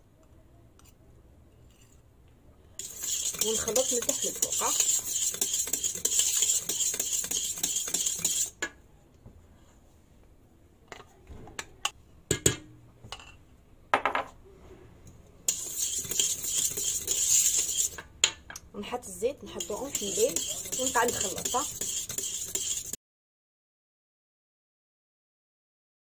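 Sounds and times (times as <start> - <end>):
whisk scraping metal bowl: 2.8 - 8.6, 15.5 - 18.1, 19.0 - 23.0.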